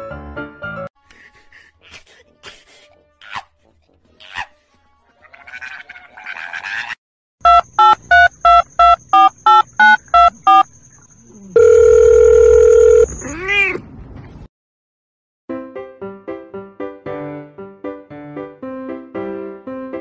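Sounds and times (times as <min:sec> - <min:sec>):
steady phone tone: 0:07.4 - 0:10.6, 0:11.6 - 0:13.2
telephone keypad beeps: 0:07.4 - 0:10.6, 0:11.6 - 0:13.2.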